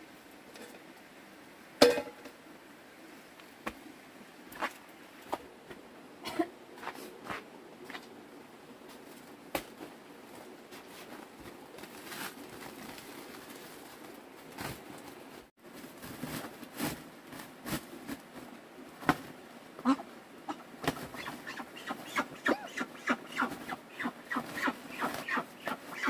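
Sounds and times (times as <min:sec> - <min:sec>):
plastic sack rustling and crinkling: 0:09.0 - 0:19.4.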